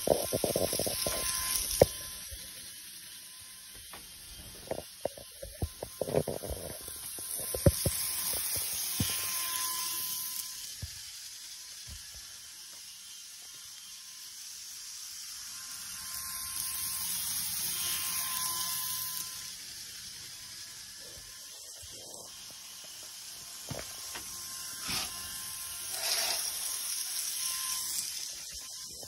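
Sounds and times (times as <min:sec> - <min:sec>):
model train running on track: 0:00.0 - 0:03.7, 0:07.2 - 0:21.5, 0:22.3 - 0:29.0.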